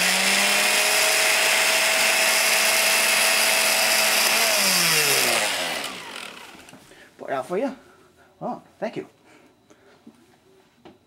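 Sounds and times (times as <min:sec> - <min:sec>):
electric blender motor running: 0:00.0 - 0:06.8.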